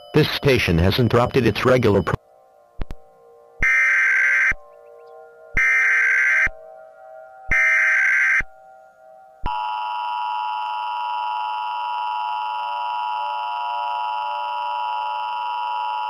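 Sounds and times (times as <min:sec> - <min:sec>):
data burst tones: 0:00.0 - 0:02.2, 0:03.6 - 0:04.7
loud steady two-tone alert signal: 0:00.0 - 0:02.2, 0:03.6 - 0:04.7, 0:05.4 - 0:08.6.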